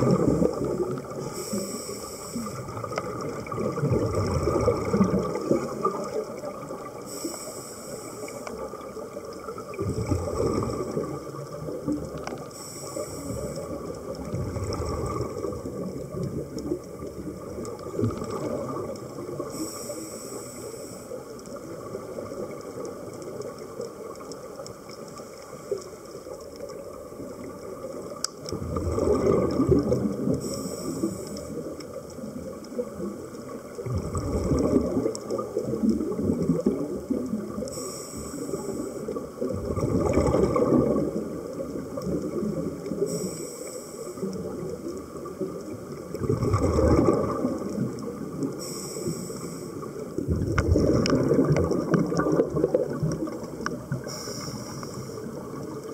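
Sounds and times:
regulator hiss on inhale: 0:00.0 - 0:03.0, 0:06.9 - 0:09.0, 0:12.3 - 0:14.2, 0:19.3 - 0:21.7, 0:30.2 - 0:32.0, 0:37.5 - 0:39.4, 0:42.9 - 0:44.6, 0:48.4 - 0:50.2, 0:53.9 - 0:55.5
bubbling on exhale: 0:00.0 - 0:20.2, 0:28.5 - 0:31.8, 0:33.8 - 0:43.5, 0:46.0 - 0:55.9.

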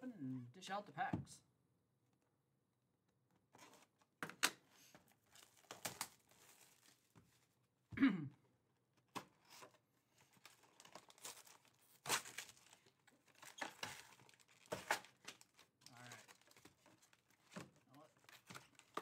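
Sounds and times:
foil packs crinkling: 0:05.3 - 0:07.1, 0:10.3 - 0:19.0.

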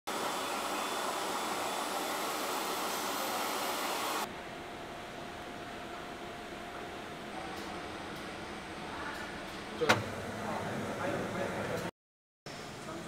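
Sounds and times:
laser machine fan hiss: 0:00.1 - 0:04.3.

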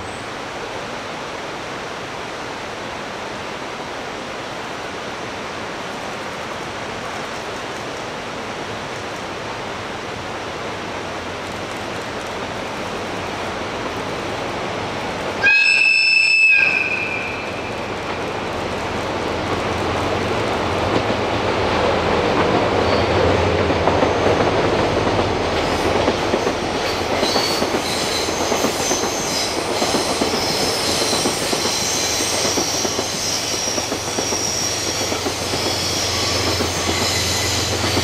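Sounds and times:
train rumbling: 0:04.9 - 0:38.0
train horn blast: 0:15.4 - 0:17.6.

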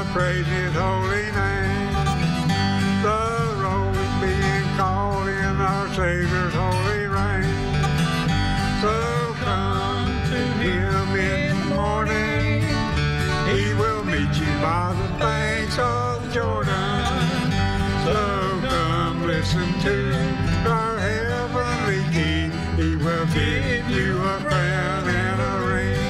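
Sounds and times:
bluegrass gospel music: 0:00.0 - 0:26.0.

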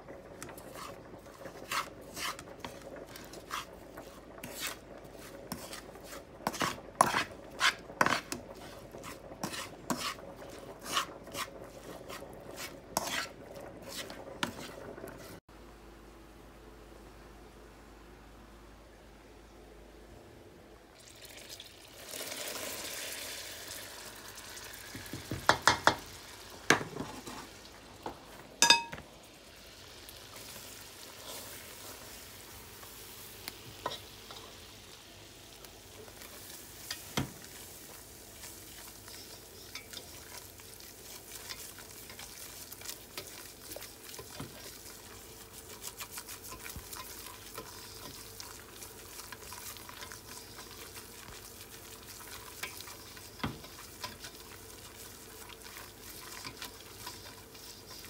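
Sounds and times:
roux sizzling in a pot: 0:00.0 - 0:15.5, 0:20.9 - 0:58.0
utensil scraping paste: 0:00.6 - 0:15.4
utensil clinking on metal pot: 0:28.6 - 0:29.0.

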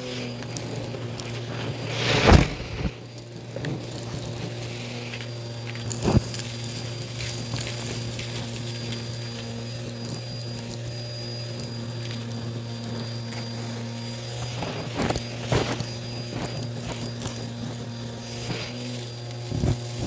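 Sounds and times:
debris clicking in vacuum: 0:00.0 - 0:20.0
vacuum cleaner running: 0:00.0 - 0:20.0.

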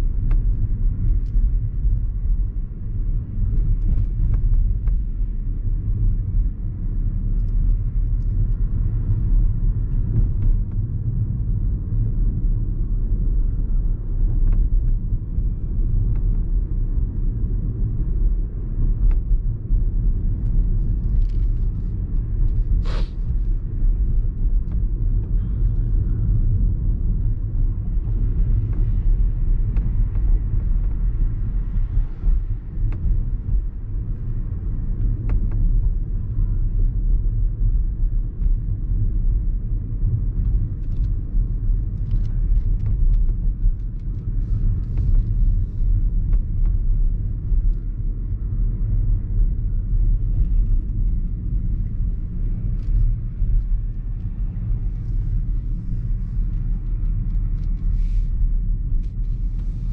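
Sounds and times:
car engine and road noise: 0:00.0 - 0:59.9.

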